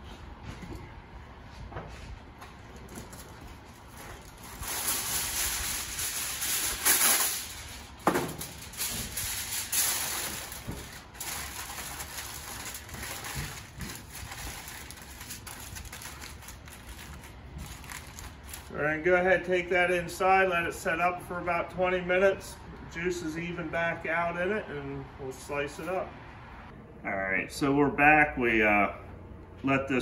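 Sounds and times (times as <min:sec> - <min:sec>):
aluminium foil crinkling: 0:02.8 - 0:18.7.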